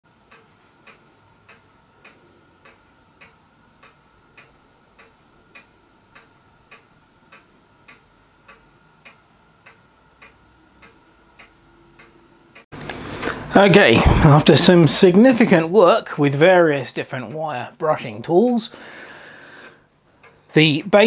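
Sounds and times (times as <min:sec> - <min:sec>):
clock ticking: 0:00.1 - 0:12.7, 0:19.6 - 0:21.0.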